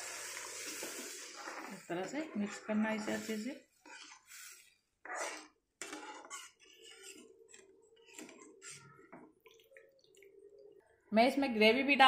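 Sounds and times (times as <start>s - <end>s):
spatula scraping a pan: 0.0s - 9.2s.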